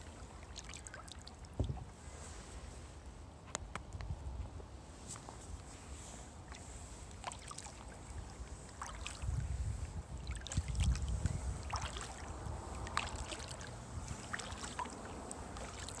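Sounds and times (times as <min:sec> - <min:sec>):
paddle splashes and drips: 0:00.0 - 0:02.4, 0:06.2 - 0:16.0.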